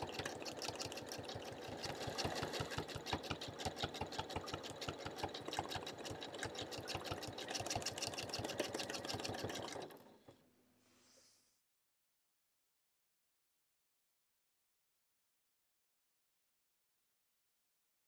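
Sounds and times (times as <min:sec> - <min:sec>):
sewing machine needle beating: 0:00.0 - 0:10.1
sewing machine stitching: 0:00.0 - 0:10.4.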